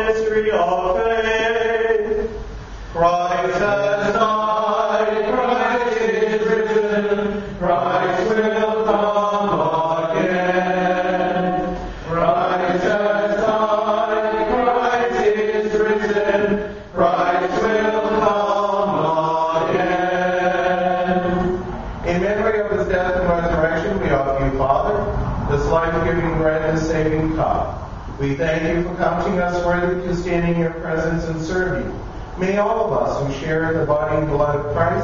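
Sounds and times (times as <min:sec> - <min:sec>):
man chanting: 0:00.0 - 0:10.5, 0:21.1 - 0:35.0.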